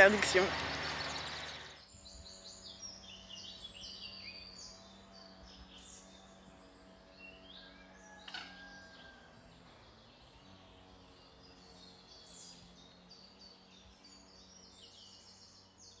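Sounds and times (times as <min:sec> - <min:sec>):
fast run of bird notes: 0:00.0 - 0:15.8
birds chirping: 0:00.0 - 0:16.0.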